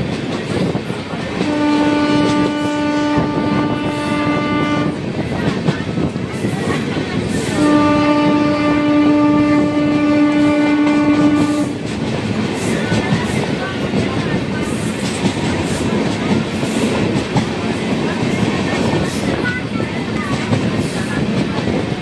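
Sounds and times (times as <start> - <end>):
train rumbling on rails: 0.0 - 22.0
train horn blasts: 1.4 - 5.1, 7.5 - 11.8.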